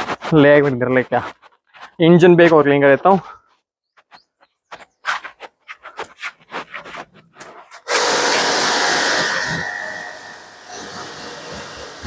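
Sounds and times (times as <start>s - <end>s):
scuffs and clicks: 0.0s - 8.5s
water jet hissing on a car: 7.9s - 9.6s
pressure washer motor whine: 7.9s - 12.0s.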